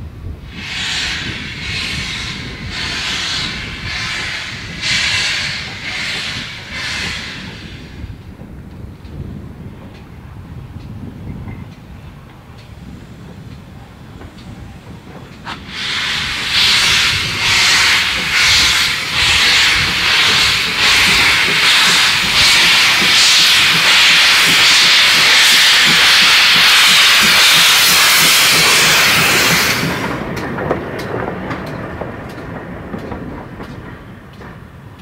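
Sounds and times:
steam locomotive hissing steam: 0.4 - 8.2, 14.5 - 30.3.

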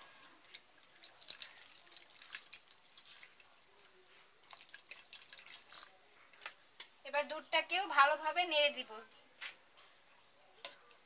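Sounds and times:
milk pouring into gravy: 0.0 - 6.9
small drips and ticks: 0.0 - 7.0.

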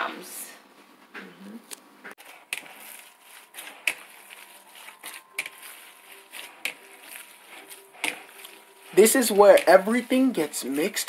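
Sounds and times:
hand squishing raw ground meat: 2.2 - 11.0.

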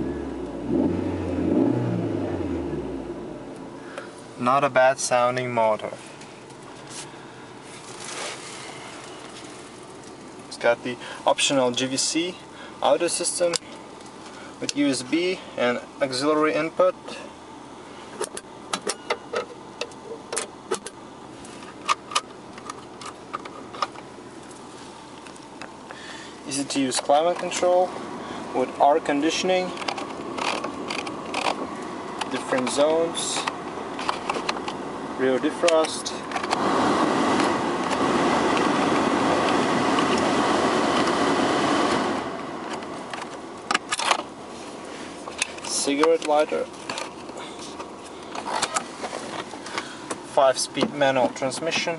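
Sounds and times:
faint hum: 0.0 - 36.5
blower fan rushing air: 20.7 - 51.0
plastic parts clicking and snapping: 29.8 - 31.6.

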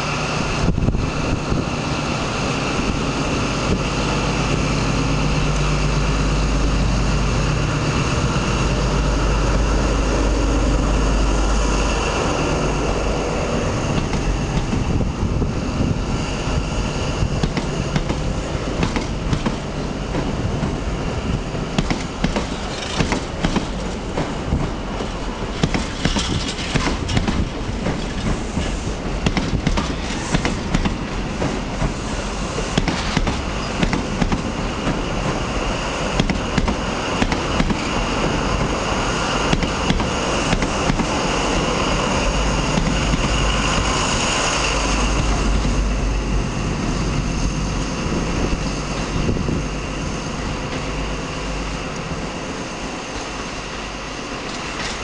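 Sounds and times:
locomotive engine deep throb: 0.0 - 54.4
train wheels clicking over joints: 12.0 - 15.6, 16.4 - 46.0, 50.4 - 55.0
high whine: 32.0 - 55.0.

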